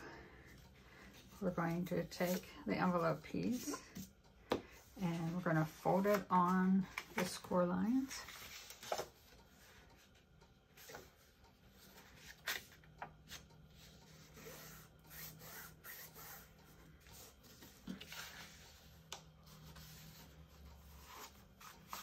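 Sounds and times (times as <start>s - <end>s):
soft rubbing of paper folds: 10.8s - 22.0s.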